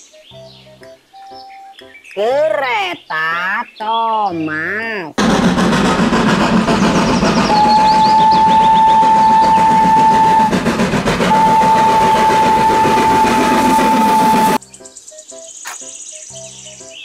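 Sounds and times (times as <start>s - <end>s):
steam locomotive running: 5.2s - 14.6s
steam whistle blasts: 7.1s - 14.6s.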